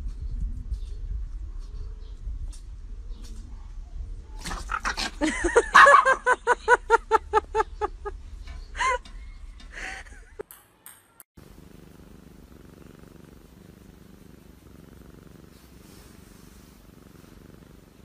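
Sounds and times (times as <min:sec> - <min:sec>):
dog yipping: 0:05.7 - 0:06.2
cat purring: 0:11.4 - 0:18.0.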